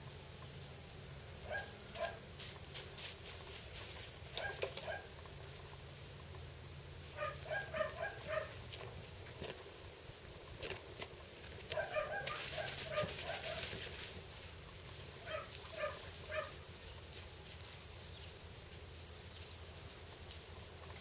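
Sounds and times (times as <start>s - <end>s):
puppies yipping: 1.4s - 2.2s, 4.4s - 5.1s, 7.2s - 8.6s, 11.7s - 13.9s, 15.2s - 16.6s
scratchy rustle: 1.9s - 5.0s, 7.2s - 21.0s.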